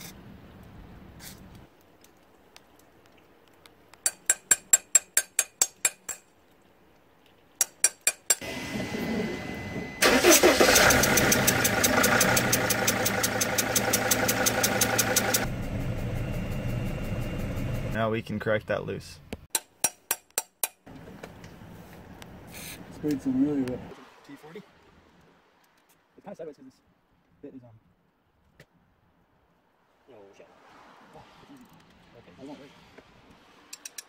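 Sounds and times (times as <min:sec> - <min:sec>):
rising hum: 0:08.4 - 0:10.0, 0:11.0 - 0:18.0
diesel engine starting and running: 0:08.4 - 0:18.2
sharp clicks: 0:11.2 - 0:15.5.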